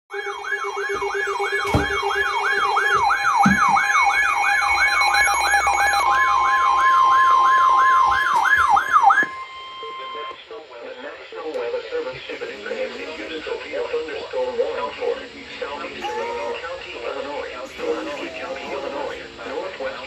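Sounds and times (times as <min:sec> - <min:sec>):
warbling siren tone: 0:00.1 - 0:10.3
single-pitched warning alarm tone: 0:00.1 - 0:10.4
steady beeping tones: 0:00.1 - 0:10.4.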